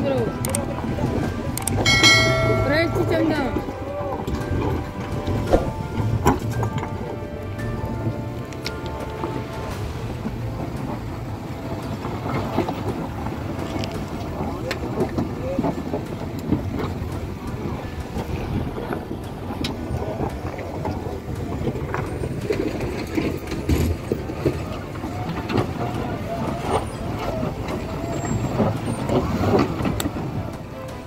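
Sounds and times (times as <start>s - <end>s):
pickup truck engines running: 0.0s - 31.0s.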